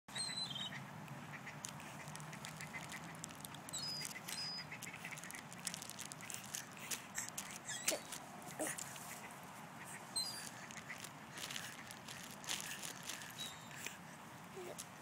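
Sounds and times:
high bird chirps: 0.1s - 0.8s, 2.6s - 5.4s, 10.1s - 11.5s, 13.3s - 13.8s
low steady hum: 0.1s - 15.0s
ducks quacking: 0.2s - 6.6s, 7.4s - 13.8s.

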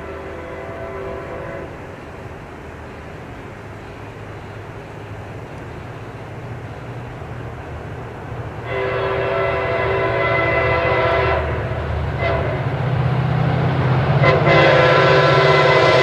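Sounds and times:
train air horn blasts: 0.0s - 1.8s, 8.6s - 13.0s, 14.0s - 16.0s
locomotive engine rumble: 0.0s - 16.0s.

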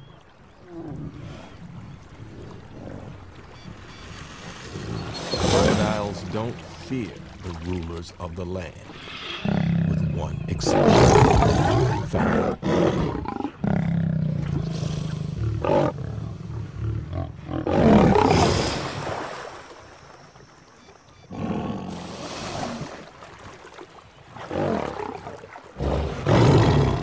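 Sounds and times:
water splashing: 0.0s - 12.3s, 18.0s - 21.2s, 21.9s - 27.0s
lion growling and snarling: 4.7s - 6.2s, 9.2s - 18.8s, 21.3s - 22.9s, 24.4s - 27.0s.

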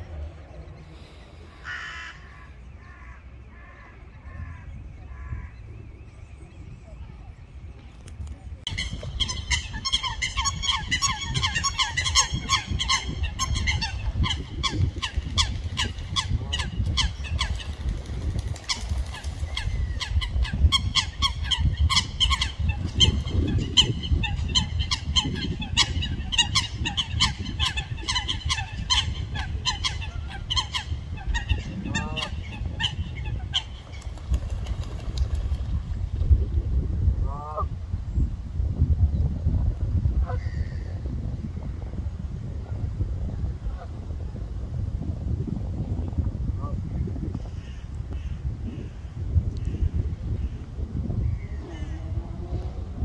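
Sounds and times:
birds honking calls: 0.0s - 6.0s, 8.7s - 17.9s, 18.6s - 34.8s.

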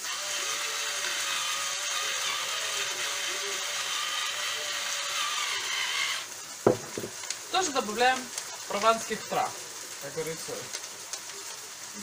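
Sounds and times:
spice mill grinder rasping: 0.0s - 7.3s
onions sizzling in oil: 0.0s - 12.0s.

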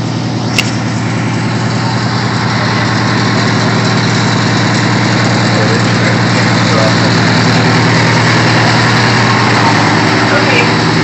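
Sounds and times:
fire truck engine idling: 0.0s - 11.0s
short click: 0.5s - 0.8s.

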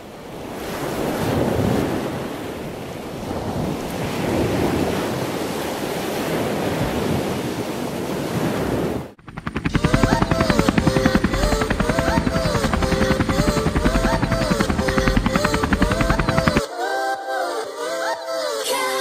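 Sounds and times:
music with fast pulsing beat: 9.2s - 16.7s.

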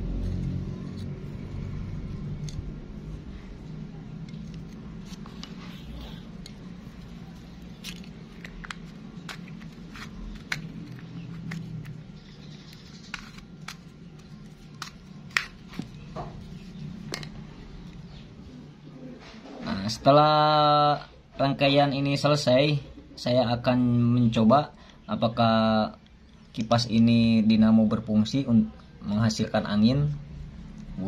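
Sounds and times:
low hum: 0.0s - 20.0s.

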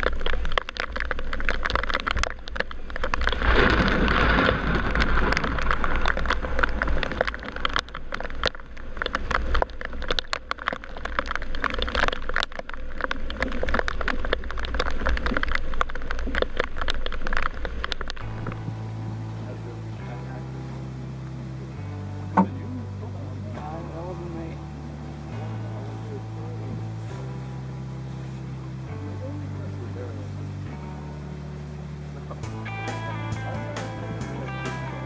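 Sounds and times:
water rushing past hull: 0.0s - 35.0s.

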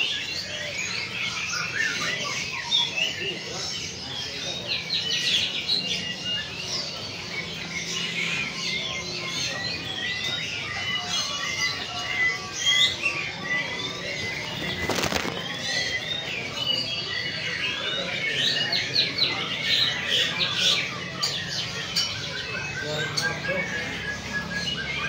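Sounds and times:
small birds chirping: 0.0s - 25.0s
pigeon wings flapping: 14.5s - 15.7s.

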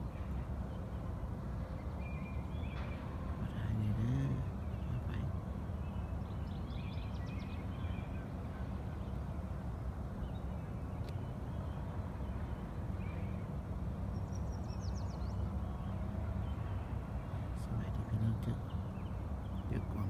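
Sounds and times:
small birds chirping: 0.0s - 20.0s.

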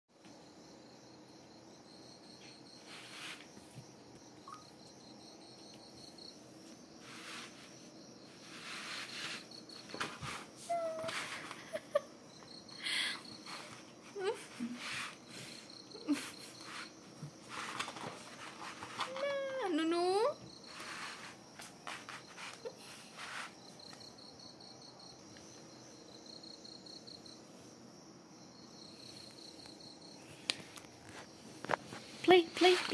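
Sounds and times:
cricket chirping: 0.2s - 32.9s
soft rustles: 2.4s - 4.8s, 5.5s - 11.8s, 13.3s - 19.6s, 20.4s - 24.4s, 29.0s - 32.9s.

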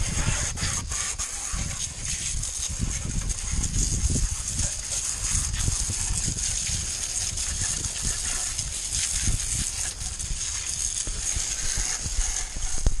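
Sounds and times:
hose nozzle spraying water: 0.0s - 13.0s
wind buffeting microphone: 0.0s - 13.0s.

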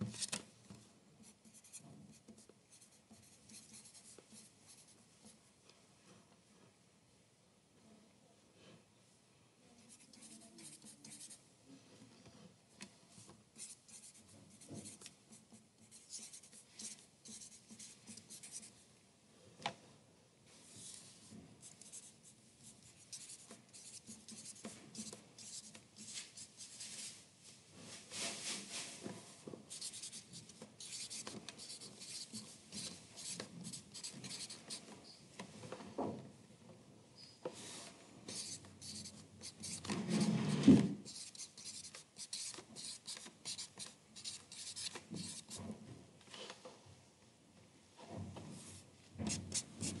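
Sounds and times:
pen scratching on paper: 1.2s - 5.0s, 9.8s - 11.4s, 13.6s - 18.7s, 21.6s - 26.8s, 29.7s - 34.8s, 38.3s - 45.6s, 49.3s - 50.0s.

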